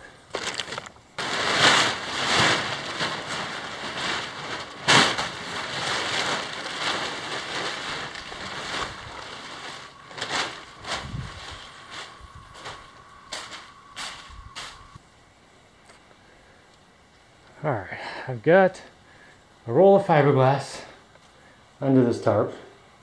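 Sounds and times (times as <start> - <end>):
plastic tarp crinkling and flapping: 0.0 - 15.0
tarp snap: 0.3 - 12.2.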